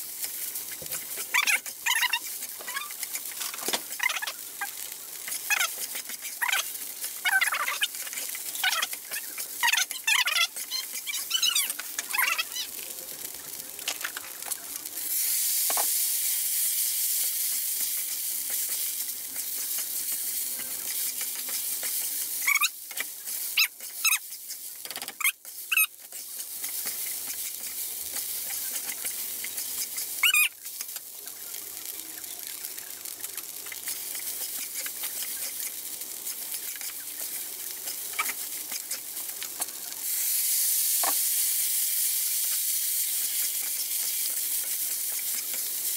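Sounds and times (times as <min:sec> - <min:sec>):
spatula scraping wok: 0:00.0 - 0:40.4, 0:42.3 - 0:45.9
food sizzling in wok: 0:00.0 - 0:45.9.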